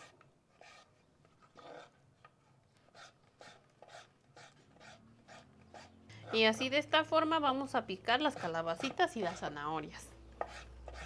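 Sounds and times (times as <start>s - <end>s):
knife slicing on wooden board: 0.0s - 2.0s, 2.9s - 5.9s, 10.4s - 11.0s.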